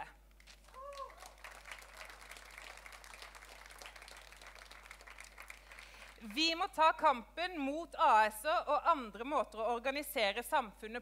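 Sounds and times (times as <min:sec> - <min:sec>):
audience clapping: 0:00.4 - 0:06.2.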